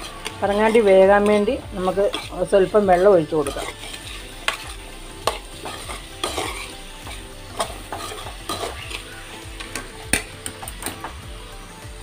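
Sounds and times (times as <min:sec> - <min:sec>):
steel spoon scraping metal pan: 0:00.0 - 0:11.1
masala sizzling: 0:00.0 - 0:12.0.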